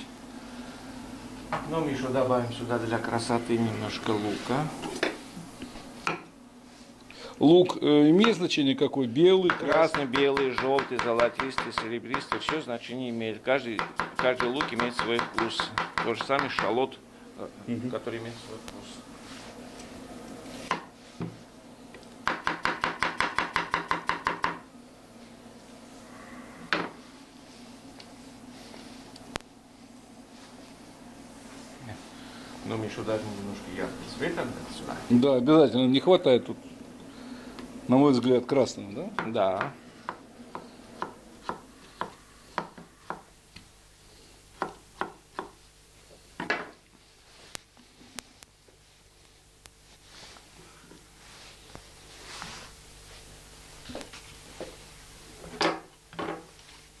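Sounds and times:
knife chopping onion on board: 0:09.4 - 0:12.7, 0:13.7 - 0:16.8, 0:22.2 - 0:24.6, 0:39.2 - 0:43.3.

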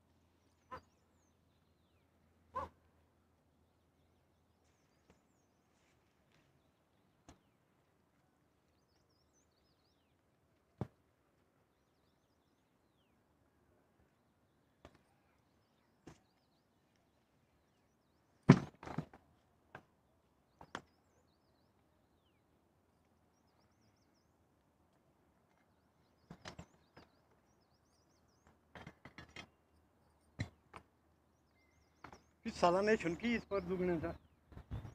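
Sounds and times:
faint bird chirps: 0:31.3 - 0:34.9.

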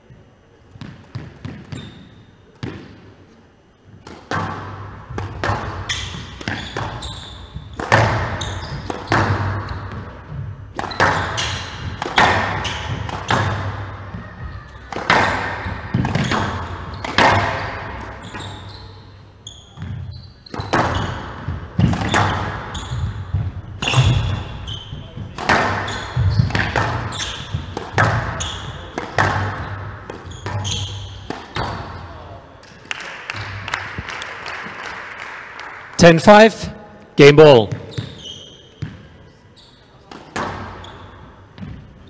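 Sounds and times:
squash ball hits: 0:04.0 - 0:18.6, 0:19.8 - 0:32.3, 0:40.1 - 0:41.9.

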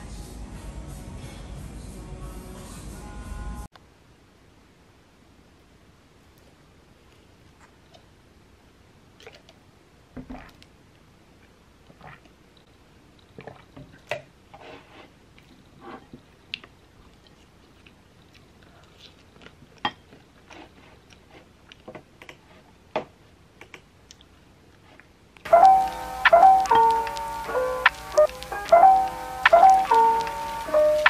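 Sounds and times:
wooden spoon scraping a bowl: 0:14.6 - 0:15.2
soft chewing: 0:15.3 - 0:22.8, 0:23.6 - 0:31.0
sharp clicks: 0:25.5 - 0:31.0.

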